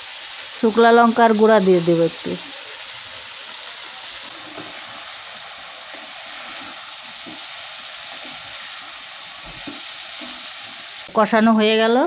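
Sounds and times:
oil sizzling: 0:00.0 - 0:12.0
wooden spatula scraping pan: 0:04.2 - 0:05.0, 0:05.8 - 0:11.0.

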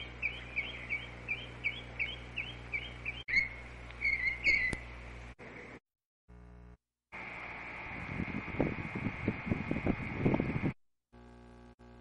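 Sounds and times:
songbird singing: 0:00.0 - 0:04.9
steady background hum: 0:00.0 - 0:12.0.

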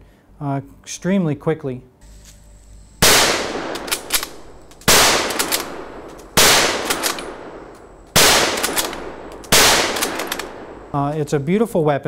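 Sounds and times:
gunshot echo: 0:03.0 - 0:11.0
rifle shots: 0:03.0 - 0:11.4
rifle bolt clicks: 0:03.2 - 0:11.2.

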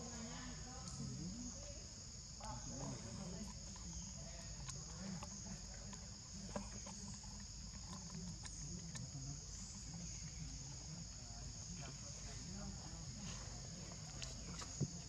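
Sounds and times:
faint low murmur: 0:00.0 - 0:15.0
insect chorus drone: 0:00.0 - 0:15.0.

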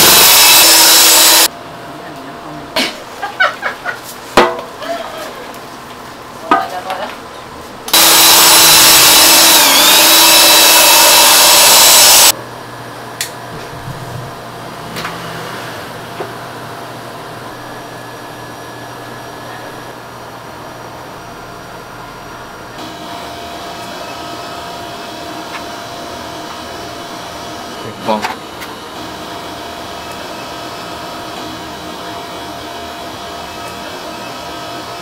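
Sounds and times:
loud motor-driven machine: 0:00.0 - 0:01.5, 0:07.9 - 0:12.3, 0:22.8 - 0:35.0.

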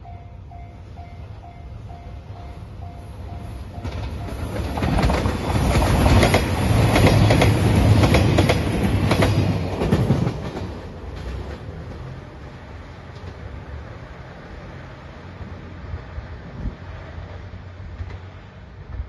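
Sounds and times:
train wheels clacking over rail joints: 0:03.8 - 0:12.2.

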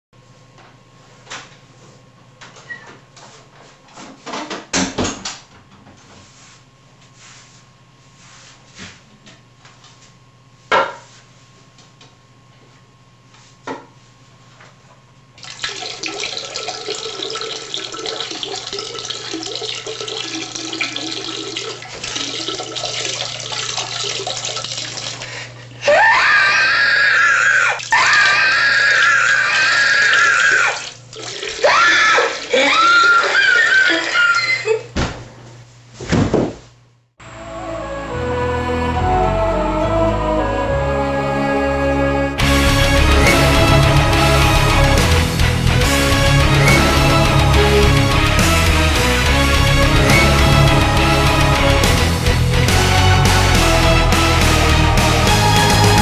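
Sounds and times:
liquid splashing into toilet bowl: 0:15.4 - 0:25.4, 0:27.7 - 0:34.4.

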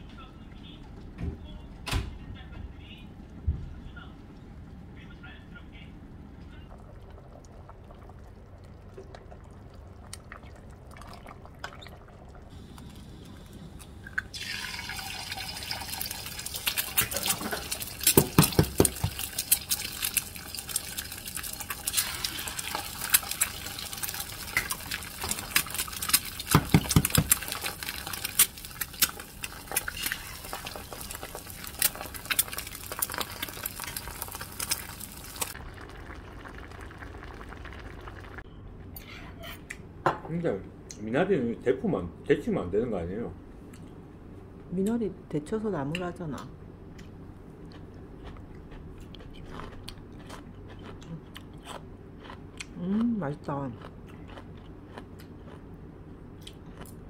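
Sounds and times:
eggs sizzling in hot oil: 0:07.5 - 0:38.4
eggs being cracked: 0:21.7 - 0:35.6.

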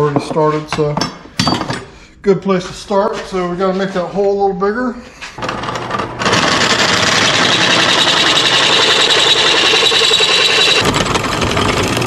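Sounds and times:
drill press cutting metal: 0:05.4 - 0:12.0.

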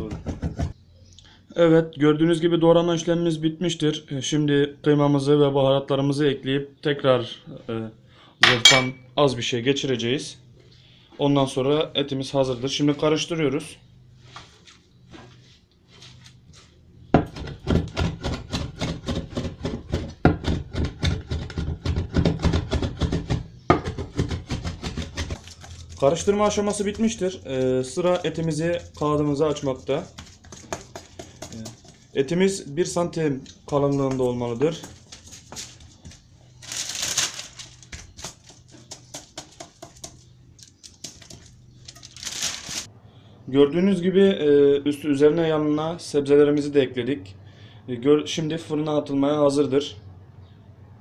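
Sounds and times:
baking paper rustle: 0:24.8 - 0:32.2, 0:33.8 - 0:42.9.

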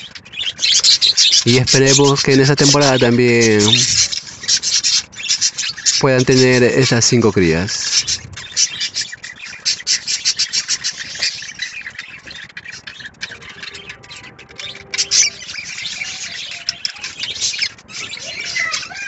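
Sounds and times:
budgerigars chirping: 0:00.0 - 0:19.0.

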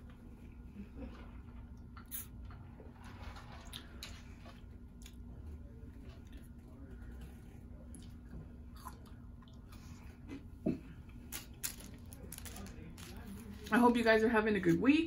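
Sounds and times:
low steady hum: 0:00.0 - 0:15.0
chewing fries: 0:01.0 - 0:10.5.

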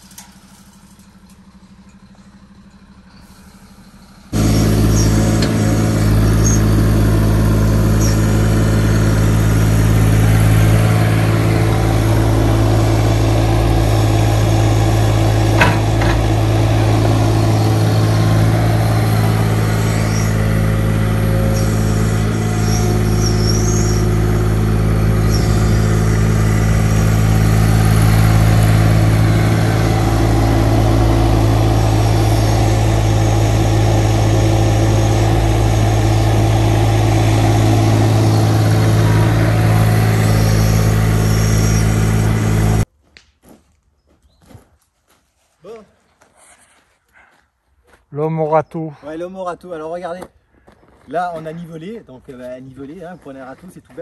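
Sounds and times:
diesel engine running: 0:00.0 - 0:42.9.

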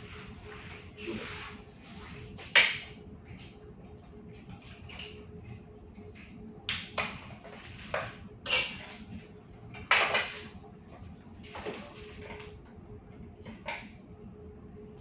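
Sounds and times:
faint steady hum: 0:00.0 - 0:15.0
tableware and cans clinking: 0:07.9 - 0:09.1, 0:09.9 - 0:10.5.

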